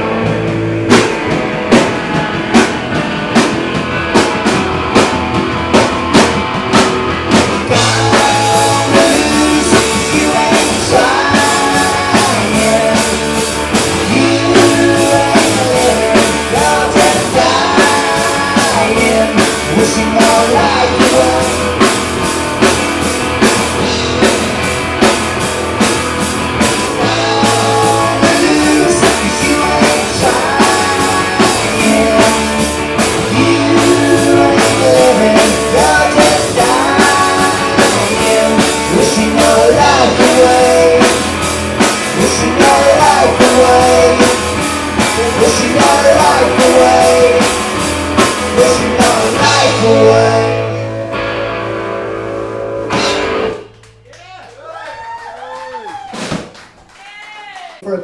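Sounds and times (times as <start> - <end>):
electric guitar: 0.0 - 55.3
bass guitar: 0.0 - 56.7
drum kit: 0.0 - 57.3
person singing lead vocal: 7.6 - 22.3, 26.8 - 51.0.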